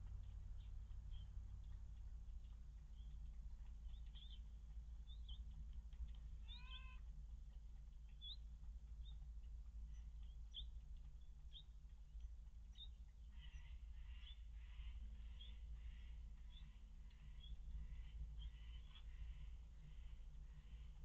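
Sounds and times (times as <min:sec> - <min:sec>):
steady low hum: 0:00.0 - 0:21.0
faint bird chirps: 0:00.2 - 0:01.8, 0:02.4 - 0:05.6, 0:06.4 - 0:07.0, 0:08.0 - 0:21.0
cat meowing: 0:06.4 - 0:07.0.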